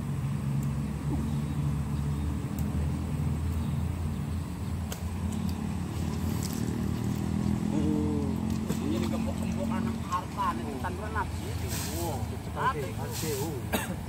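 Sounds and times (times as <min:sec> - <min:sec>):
engine running low rumble: 0:00.0 - 0:14.0.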